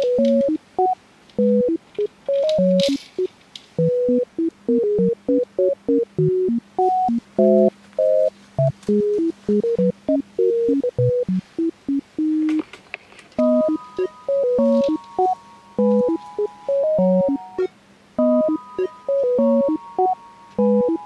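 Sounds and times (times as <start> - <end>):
electronic tone melody: 0.0 - 3.0, 3.8 - 12.6, 13.4 - 21.0.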